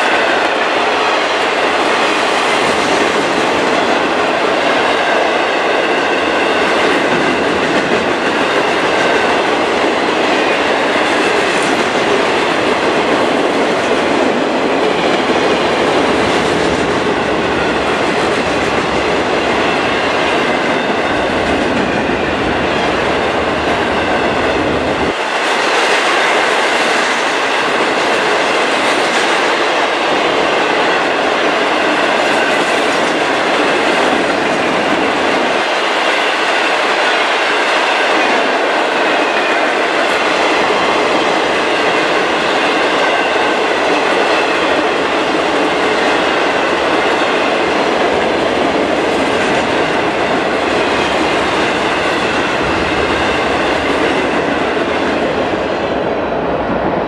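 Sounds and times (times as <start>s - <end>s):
train wheels rumbling on rail: 0.0s - 57.0s.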